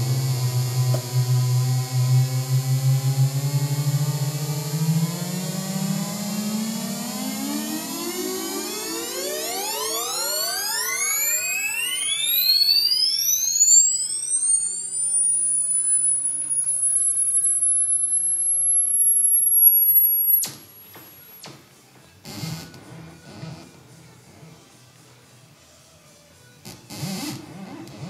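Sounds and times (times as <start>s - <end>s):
synthesizer tones gliding upward: 0.0s - 20.5s
scattered noise: 0.0s - 25.0s
high steady whistle: 1.2s - 21.6s.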